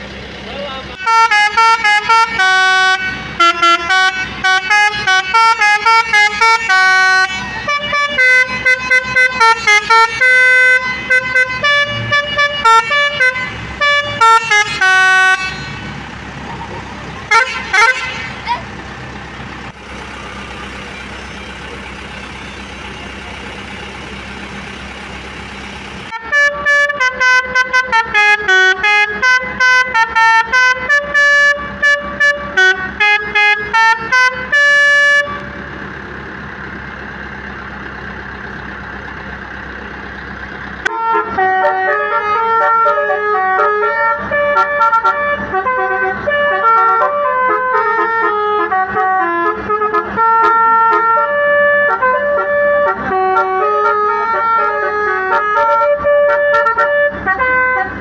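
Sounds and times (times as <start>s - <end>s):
bus horn playing tunes: 0.9s - 16.2s, 16.8s - 18.8s, 25.2s - 35.7s, 40.8s - 58.0s.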